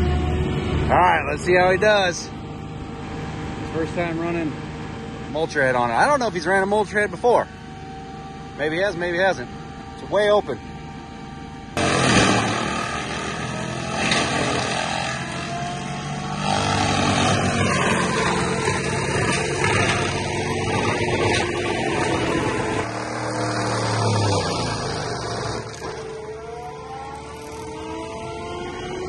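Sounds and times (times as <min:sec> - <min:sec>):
mulcher grinding brush: 0:11.8 - 0:28.2.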